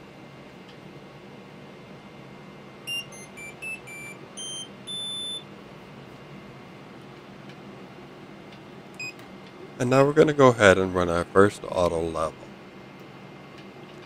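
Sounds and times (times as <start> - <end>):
electronic beeps jingle: 2.9 - 5.4.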